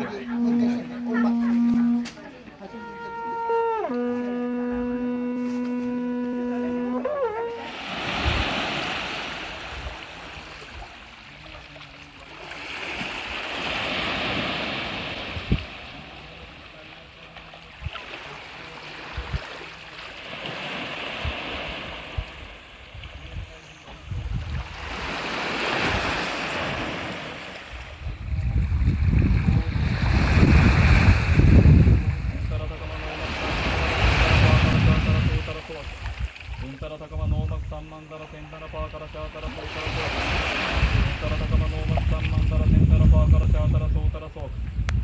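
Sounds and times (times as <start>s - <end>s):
sea waves surging and washing back: 0.0s - 3.4s, 4.8s - 45.0s
wind buffeting microphone: 14.3s - 16.1s, 21.1s - 26.9s, 27.7s - 37.8s, 39.6s - 45.0s.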